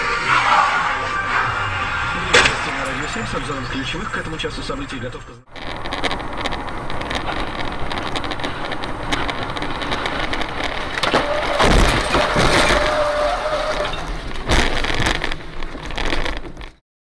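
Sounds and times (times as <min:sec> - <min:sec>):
hard impact: 0:00.0 - 0:03.6, 0:05.5 - 0:13.1, 0:13.8 - 0:16.8
steady tone: 0:00.0 - 0:12.6
car road and engine noise: 0:00.0 - 0:16.8
wreckage crashing into car: 0:05.7 - 0:16.6.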